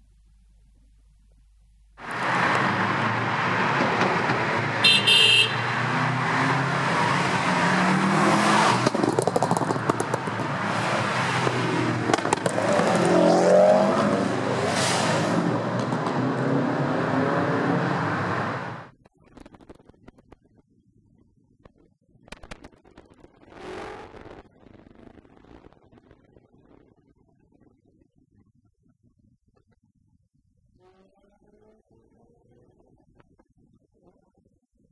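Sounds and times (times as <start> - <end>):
cars driving past: 2.0 - 18.9
engine revving: 2.0 - 18.9
car horn toot: 4.8 - 6.0.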